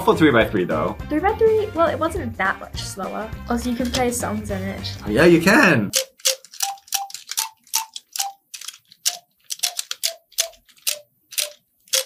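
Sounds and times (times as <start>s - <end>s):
puzzle cube clicks: 5.9s - 12.0s.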